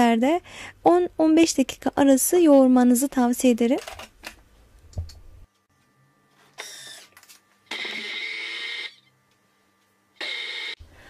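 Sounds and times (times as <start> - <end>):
food processor motor bursts: 6.6 - 7.1, 7.7 - 9.0, 10.2 - 10.8.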